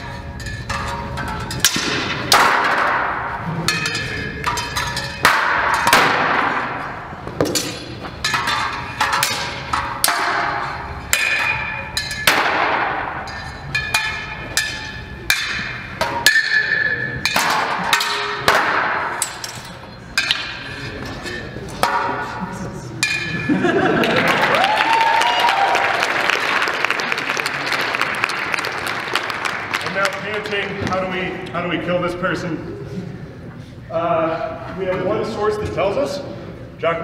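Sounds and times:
steel swords clashing: 0.0s - 23.5s.

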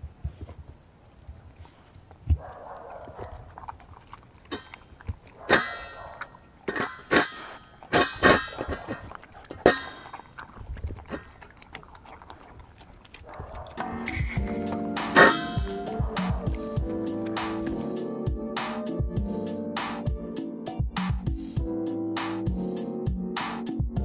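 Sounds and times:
dog chewing: 1.1s - 18.0s
dog bowl clanking: 3.6s - 17.8s.

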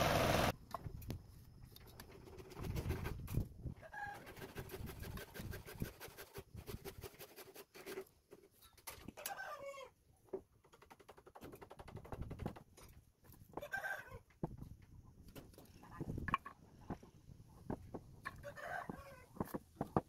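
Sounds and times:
light rapid scratching: 1.8s - 8.4s.

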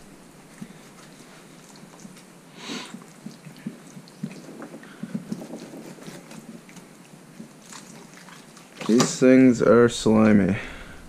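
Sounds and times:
knife scraping along fish backbone: 2.9s - 8.7s.

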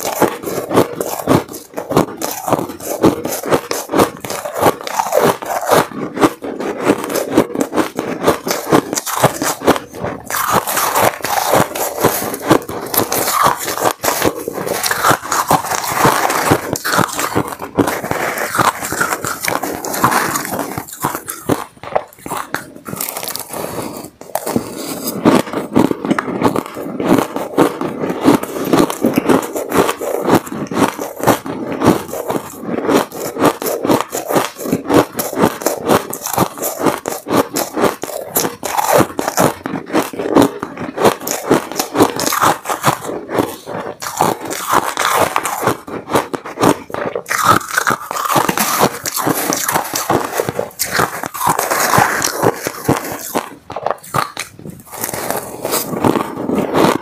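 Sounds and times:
metal spoon scraping ice: 0.0s - 25.7s, 26.5s - 57.0s
chewing crunchy ice: 0.0s - 57.0s.

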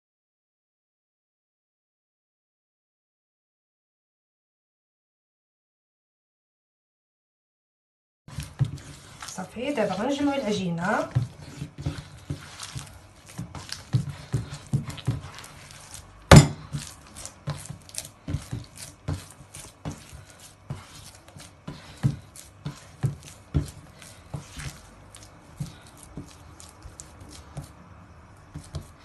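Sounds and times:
hands kneading dough: 8.3s - 29.0s.

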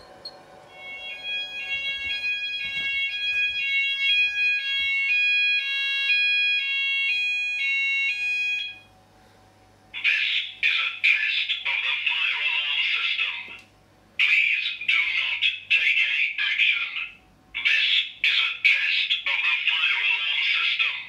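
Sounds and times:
fire alarm two-tone alert: 0.0s - 8.9s
recorded voice message: 10.0s - 13.6s, 14.2s - 21.0s.

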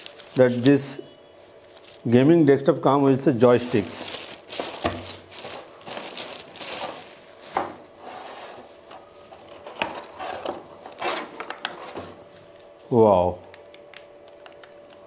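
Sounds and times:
packaging rustling: 0.0s - 0.8s, 1.4s - 2.2s, 3.4s - 7.9s.

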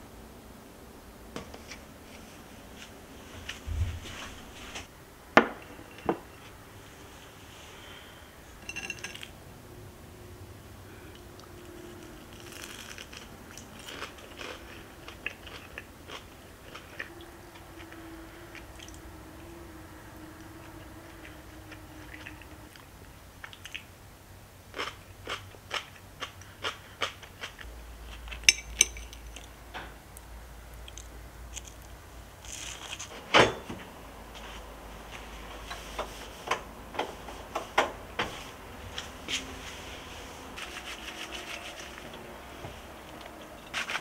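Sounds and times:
crunchy chewing: 11.1s - 19.6s, 24.7s - 29.6s, 30.2s - 33.1s.

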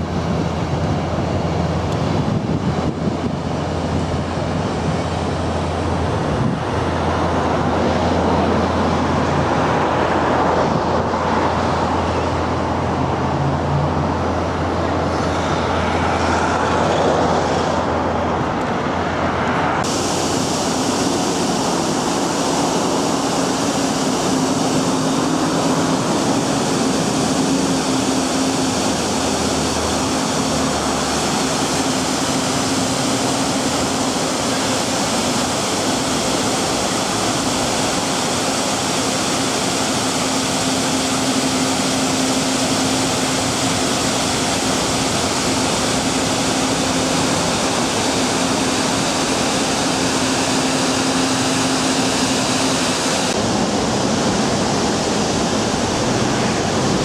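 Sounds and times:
road traffic noise: 0.0s - 57.0s.

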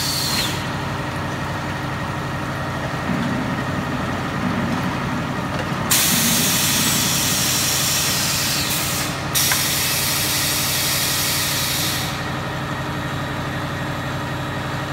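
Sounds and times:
machinery humming: 0.0s - 14.9s
compressed air hissing: 5.9s - 12.2s.

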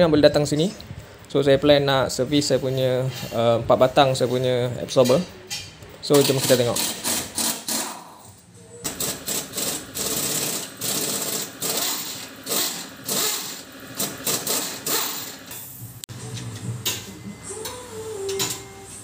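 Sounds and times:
pneumatic impact wrench rattling: 6.2s - 8.1s, 8.8s - 15.7s.

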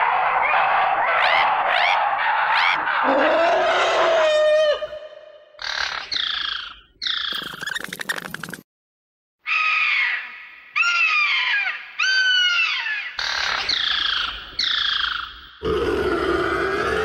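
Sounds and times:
shrill creature cries: 1.2s - 5.8s, 15.6s - 17.0s
long rough low creature call: 15.6s - 17.0s.

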